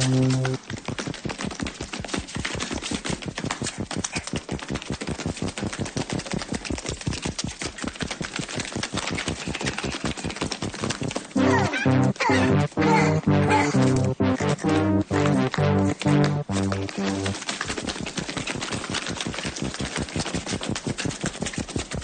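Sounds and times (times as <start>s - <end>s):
rapid clicking clatter: 0.3s - 11.4s, 17.3s - 22.0s.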